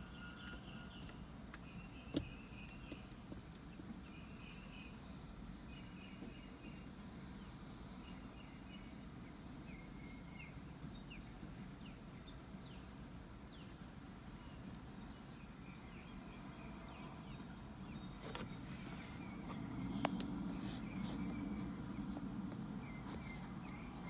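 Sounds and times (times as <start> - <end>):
birds chirping: 0.0 - 24.0
low outdoor rumble: 0.0 - 24.0.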